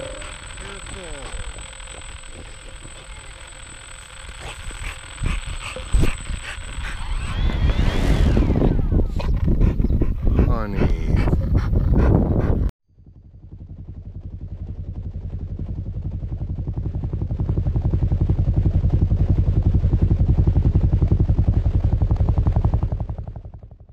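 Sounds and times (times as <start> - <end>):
low pulsing hum: 0.0 - 23.9
person speaking: 10.3 - 11.4.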